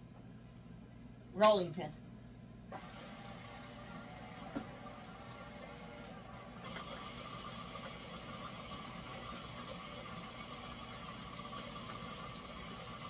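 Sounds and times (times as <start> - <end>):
electric stand mixer running: 2.8 - 13.0.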